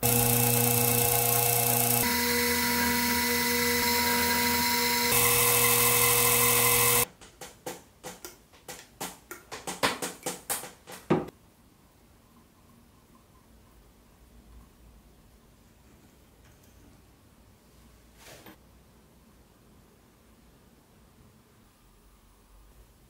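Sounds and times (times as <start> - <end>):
milling machine drilling aluminium: 0.0 - 7.0.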